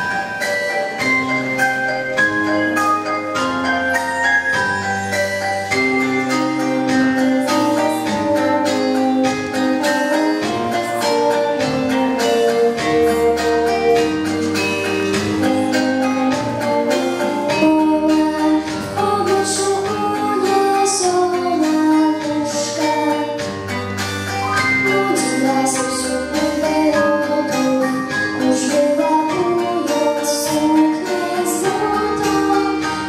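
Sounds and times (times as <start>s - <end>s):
instrumental accompaniment: 0.0s - 33.0s
girl singing into microphone: 5.7s - 14.3s, 15.4s - 23.6s, 24.8s - 33.0s.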